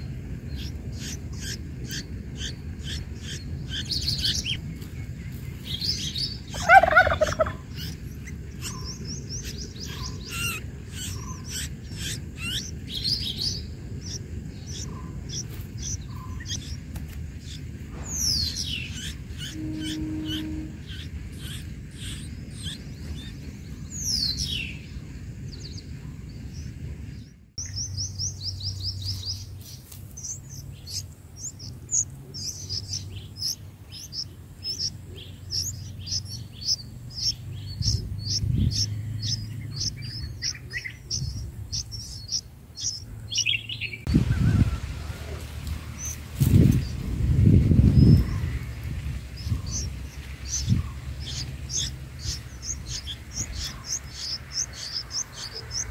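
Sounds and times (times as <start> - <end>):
nestlings chirping: 0.0 - 55.9
downward-sliding bird calls: 5.9 - 8.0, 14.7 - 24.5, 48.0 - 55.9.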